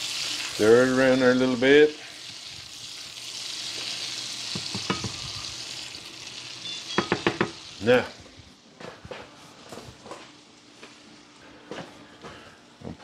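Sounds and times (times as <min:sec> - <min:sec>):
liquid sizzling in a hot skillet: 0:00.0 - 0:08.2.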